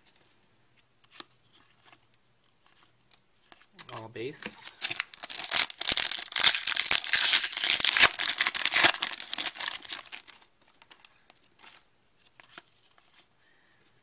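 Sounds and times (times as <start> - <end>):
foil wrapper tearing and crinkling: 4.5 - 10.4.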